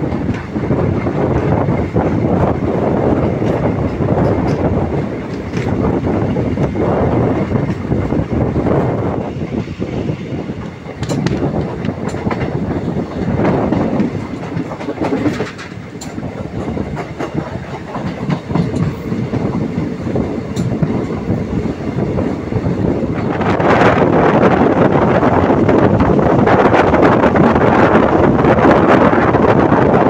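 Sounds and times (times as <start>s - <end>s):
wheels clicking over rail joints: 0.0s - 7.9s, 10.6s - 21.4s
train wheels rumbling on rails: 0.0s - 30.0s.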